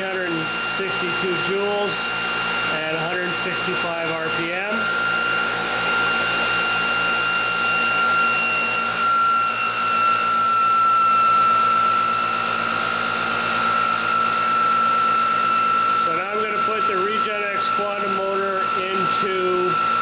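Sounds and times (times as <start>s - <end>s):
electric motors whining: 0.0s - 20.0s.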